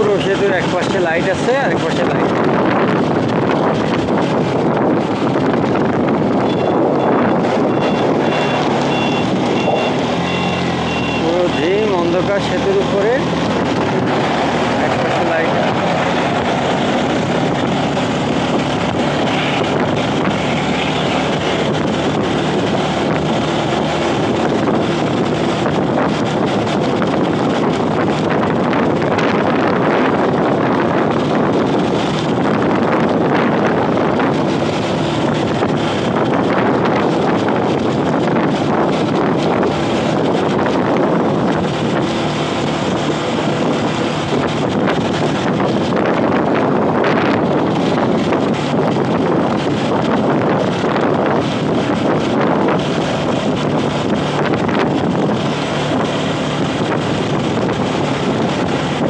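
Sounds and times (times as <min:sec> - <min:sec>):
engine hum: 0:00.0 - 0:59.0
wind buffeting microphone: 0:00.0 - 0:59.0.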